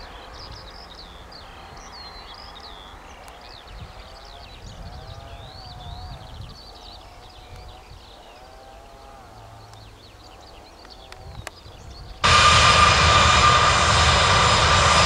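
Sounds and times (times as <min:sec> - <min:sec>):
low rumble: 0:12.2 - 0:15.0.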